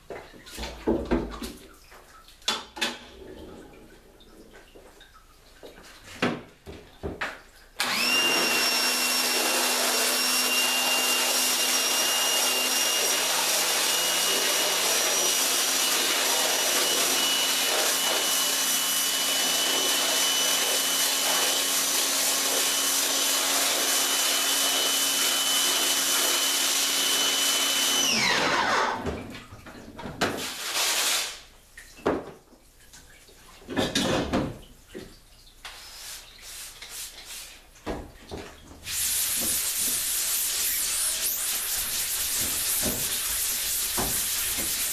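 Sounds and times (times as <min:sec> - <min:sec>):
pressure washer spraying: 0:07.8 - 0:27.9, 0:30.4 - 0:31.4, 0:38.9 - 0:44.9
scrubbing: 0:38.9 - 0:44.9.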